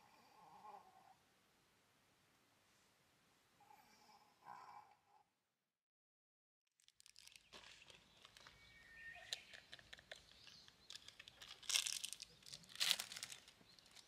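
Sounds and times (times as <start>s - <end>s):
rustling and crinkling: 6.7s - 14.0s.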